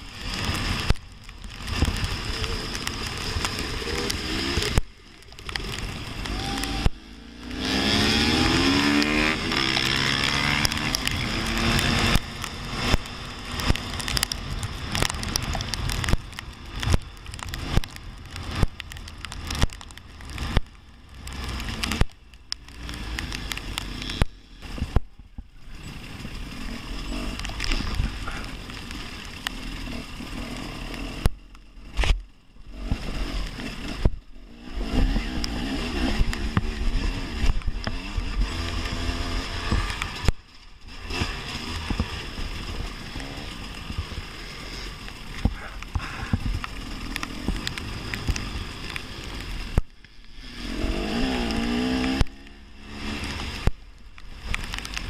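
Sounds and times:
wind and spray rush: 0.0 - 55.0
dirt bike engine revving hard: 6.3 - 13.0, 50.4 - 53.6.

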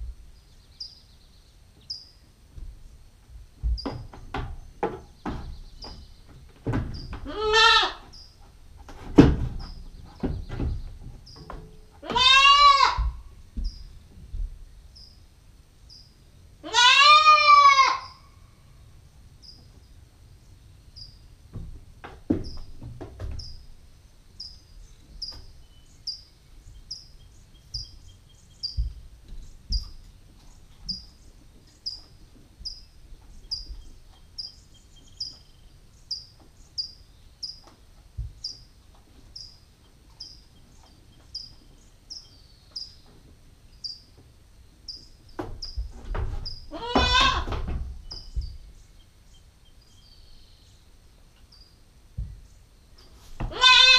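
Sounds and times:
goat kid bleating: 7.2 - 8.1, 12.0 - 13.2, 16.6 - 18.3, 46.7 - 47.6, 53.4 - 53.9.

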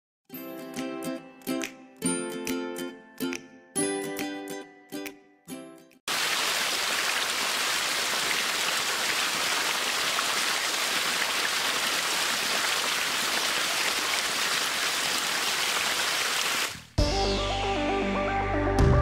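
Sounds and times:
water pouring down metal chute: 6.1 - 16.8.

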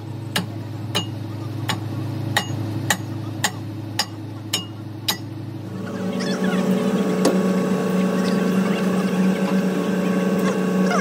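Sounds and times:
steady machine hum: 0.0 - 11.0.

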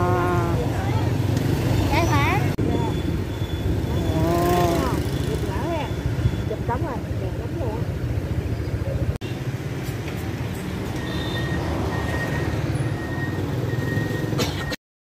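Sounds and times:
low rumble of street traffic: 0.0 - 14.8.

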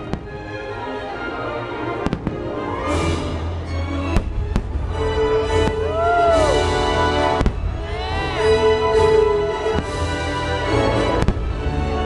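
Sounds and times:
music playing: 0.0 - 12.0
fireworks bursting: 1.9 - 2.6, 4.1 - 12.0.

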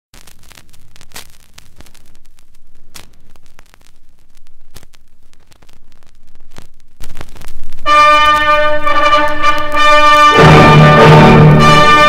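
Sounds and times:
vinyl crackly hiss and rumble: 0.1 - 12.0
vinyl clicks and pops: 0.2 - 8.6.

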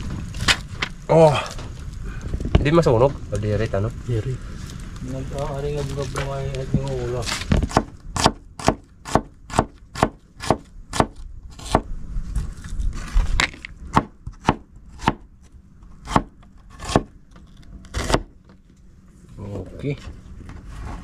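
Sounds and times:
knife slicing onion: 7.4 - 11.9, 13.4 - 15.3, 16.0 - 17.1, 17.8 - 18.3.

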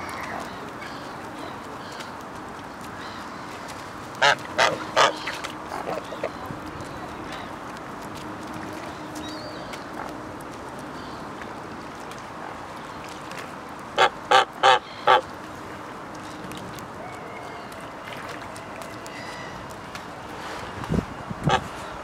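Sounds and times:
goose honking: 4.2 - 6.3, 14.0 - 15.2.

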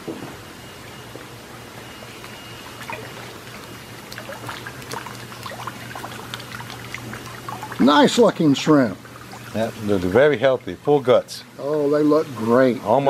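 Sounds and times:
steady low hum: 0.0 - 13.0
water splashing and dripping: 2.2 - 11.0.

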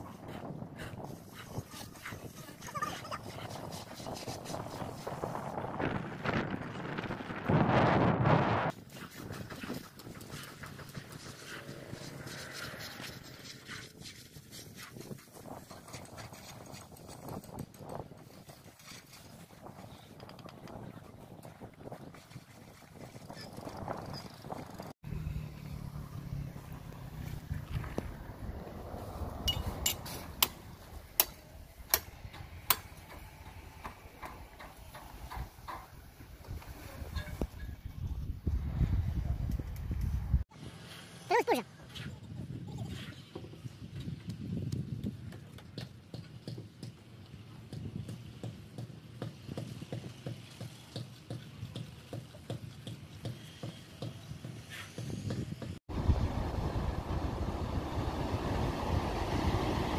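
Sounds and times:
hand float scraping render: 0.1 - 5.6, 8.7 - 24.6.

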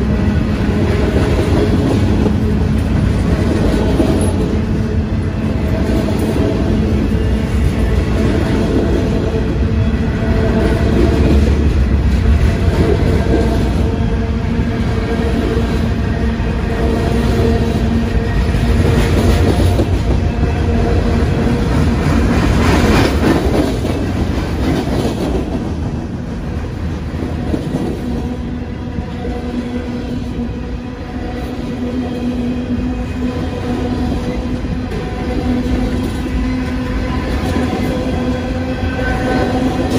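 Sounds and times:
train wheels clattering on rails: 0.0 - 30.7, 31.4 - 39.9.

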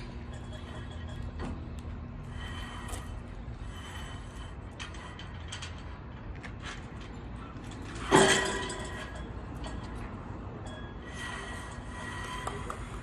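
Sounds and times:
loud ringing clank: 8.0 - 12.6.

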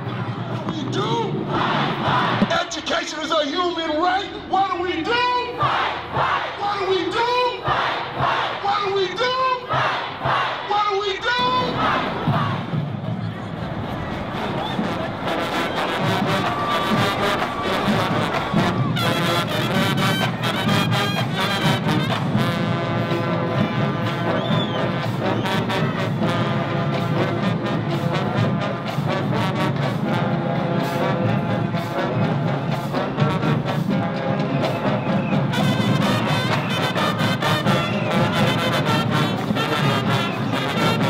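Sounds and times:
trombone: 13.8 - 41.0
saxophone: 14.0 - 41.0.

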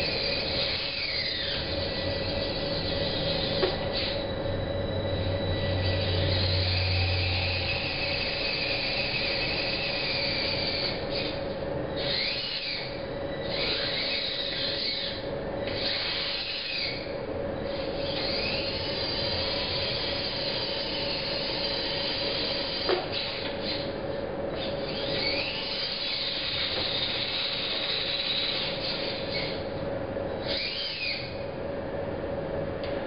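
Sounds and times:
electric gear motors whining: 0.0 - 31.5
low hum: 1.6 - 9.6.

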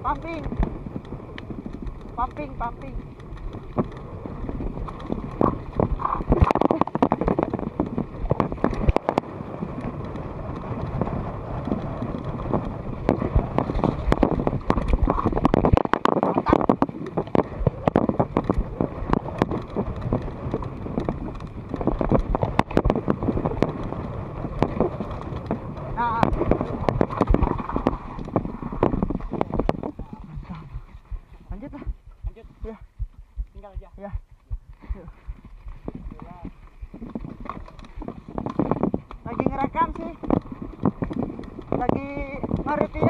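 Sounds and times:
bike rattling and knocking: 0.0 - 43.0
wind buffeting microphone: 0.0 - 43.0.

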